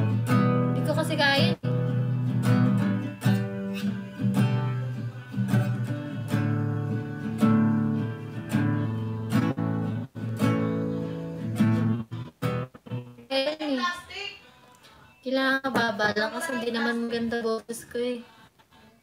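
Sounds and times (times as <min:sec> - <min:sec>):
acoustic guitar strumming: 0:00.0 - 0:13.4.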